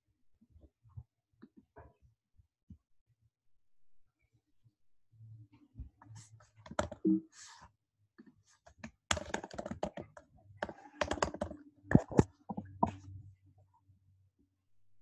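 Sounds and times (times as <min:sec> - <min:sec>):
typing on computer keyboard: 0:06.7 - 0:07.1, 0:08.8 - 0:12.8.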